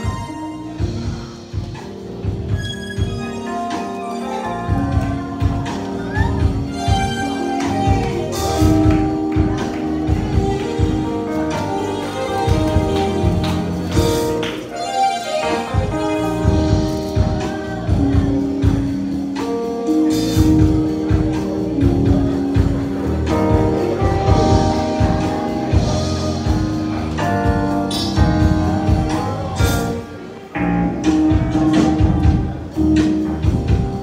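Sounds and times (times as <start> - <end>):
steady drum beat: 0.0 - 14.7, 15.4 - 34.0
long held instrumental notes: 0.0 - 34.0.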